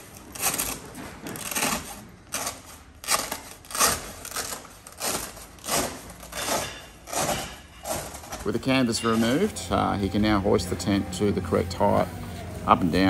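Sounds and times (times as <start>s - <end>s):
velcro ripping apart: 0.0s - 8.5s.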